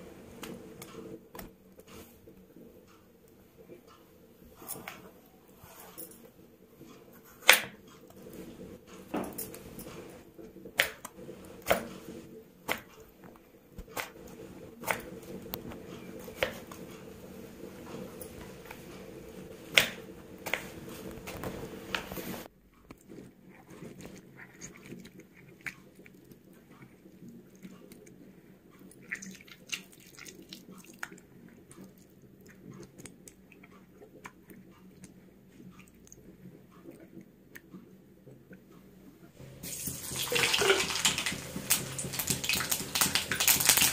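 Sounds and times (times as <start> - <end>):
hands washing in water: 29.0 - 31.2, 39.6 - 43.9.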